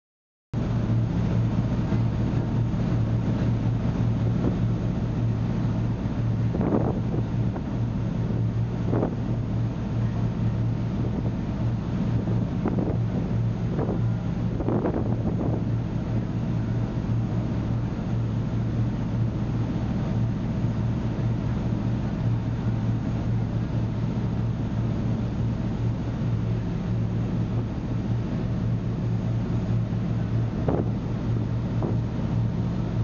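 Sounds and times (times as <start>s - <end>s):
ferry engines droning: 0.6s - 33.0s
rush of boat wake: 0.6s - 33.0s
wind buffeting microphone: 5.9s - 17.8s, 29.4s - 33.0s.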